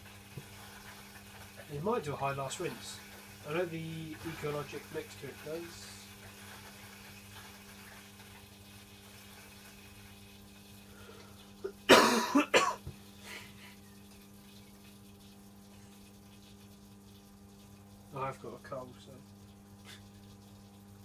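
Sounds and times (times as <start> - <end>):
washing machine humming: 0.0 - 21.0
person coughing: 11.6 - 13.4.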